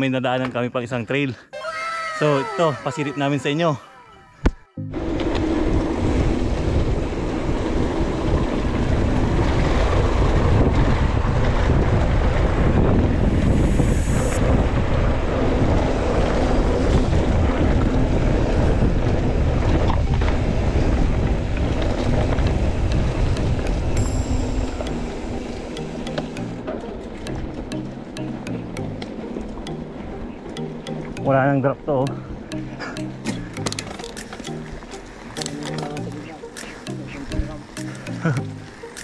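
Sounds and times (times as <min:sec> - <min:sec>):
wind buffeting microphone: 0:05.0 - 0:24.0.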